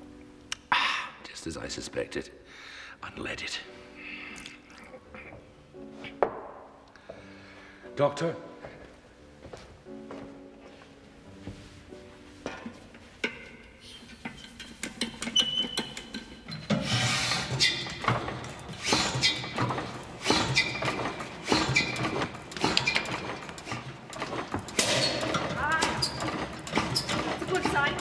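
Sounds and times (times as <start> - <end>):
short high squeak: 16.9 - 18.0.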